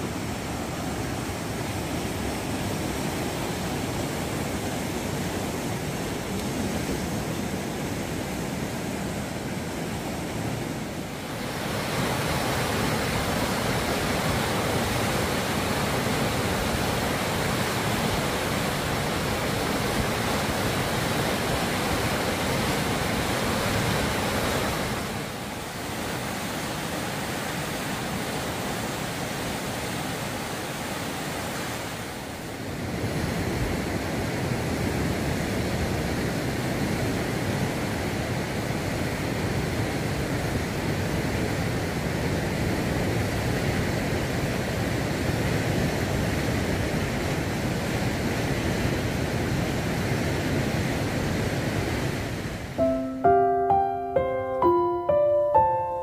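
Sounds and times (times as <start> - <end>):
water rushing over rocks: 0.0 - 33.8.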